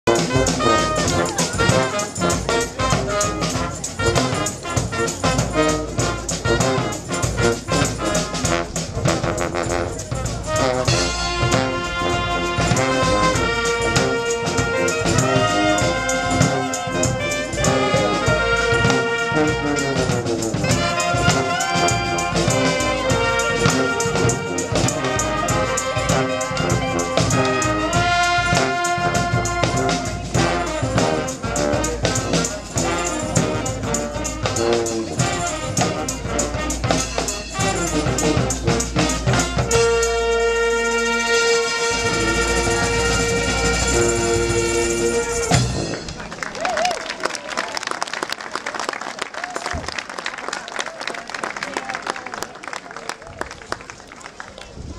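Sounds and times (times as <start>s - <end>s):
horns playing held notes: 0.0s - 46.8s
street band playing: 0.0s - 54.9s
drum beat: 0.1s - 40.3s.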